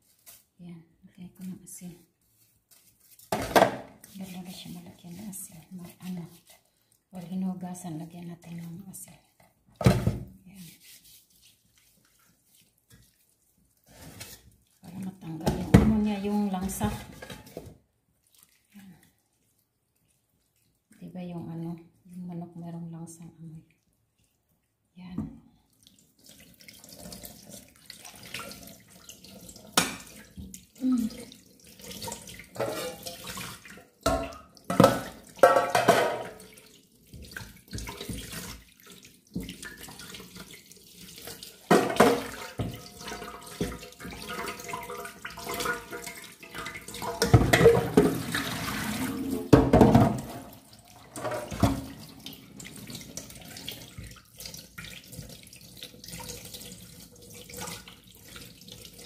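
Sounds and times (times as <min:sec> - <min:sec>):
chicken rubbed and rinsed by hand: 0:00.0 - 0:59.0
water splashing: 0:25.6 - 0:59.0
tap water running into pot: 0:26.0 - 0:59.0.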